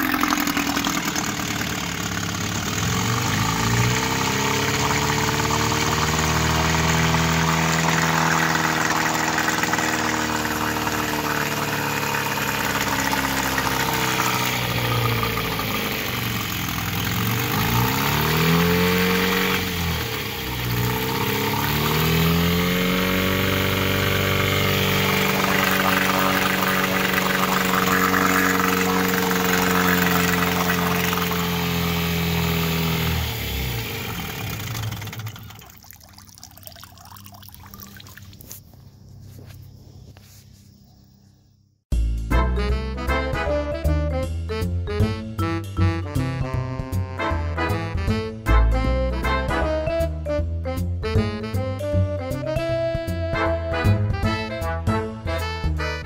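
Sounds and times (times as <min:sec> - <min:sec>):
outboard motor running in water: 0:00.0 - 0:38.6.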